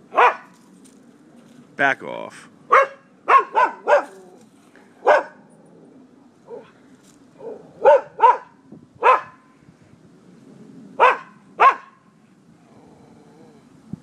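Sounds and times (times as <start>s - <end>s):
dog barking: 0.1s - 0.5s, 2.7s - 4.2s, 5.0s - 5.4s, 6.5s - 6.7s, 7.4s - 9.4s, 11.0s - 12.0s.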